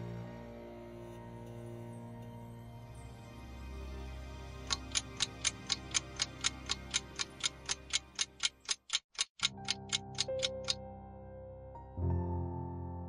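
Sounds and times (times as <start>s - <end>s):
soft background music: 0.0s - 8.8s, 9.4s - 13.0s
timer ticking: 4.7s - 10.8s.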